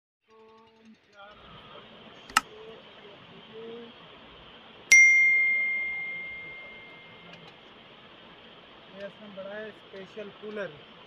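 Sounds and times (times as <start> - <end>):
bell-like notification ding: 4.9 - 7.3.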